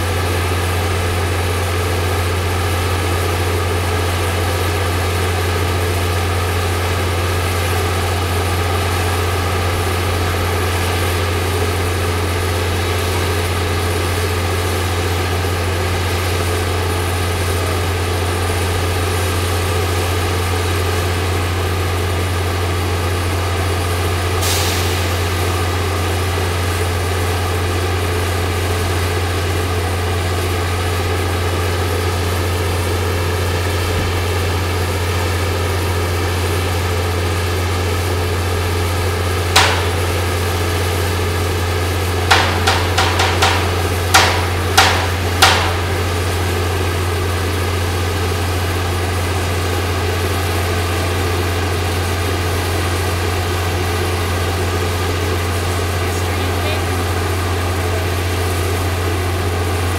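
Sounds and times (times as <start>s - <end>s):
crane engine hum: 0.0s - 59.9s
metallic knocks on steel: 39.6s - 40.4s, 42.3s - 46.2s.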